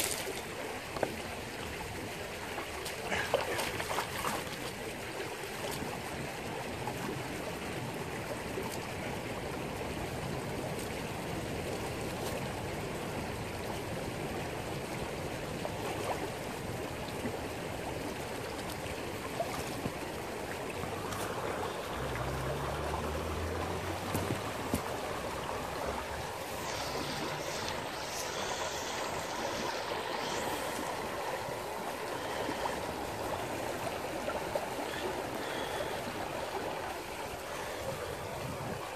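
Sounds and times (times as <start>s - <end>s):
creek water babbling over stones: 0.0s - 38.9s.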